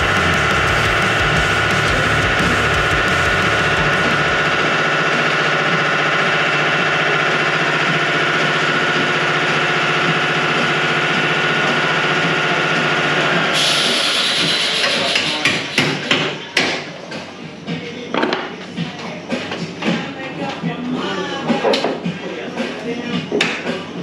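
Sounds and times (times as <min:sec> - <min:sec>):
air hiss: 0:13.6 - 0:16.0.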